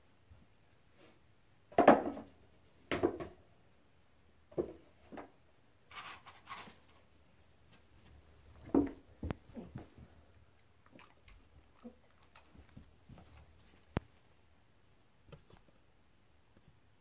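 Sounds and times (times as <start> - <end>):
objects knocking and scraping: 4.5 - 7.1.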